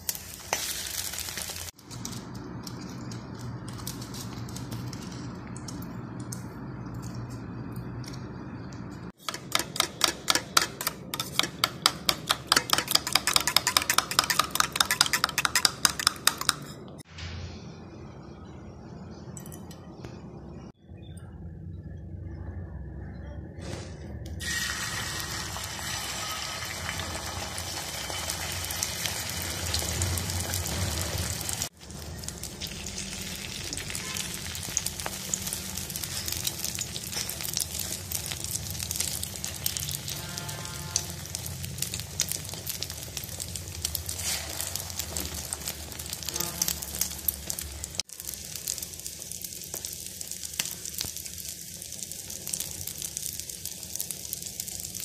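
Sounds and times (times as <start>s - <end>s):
omelette sizzling in oil: 0.0s - 5.6s, 24.4s - 55.0s.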